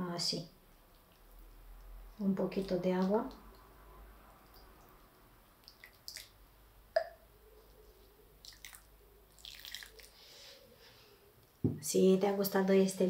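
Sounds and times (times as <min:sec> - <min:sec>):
water trickling into soil: 0:00.6 - 0:06.4, 0:08.4 - 0:10.3.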